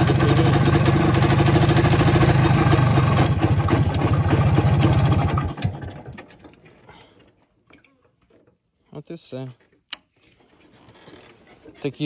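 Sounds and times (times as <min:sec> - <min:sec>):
two-stroke motorcycle engine running: 0:00.0 - 0:06.2.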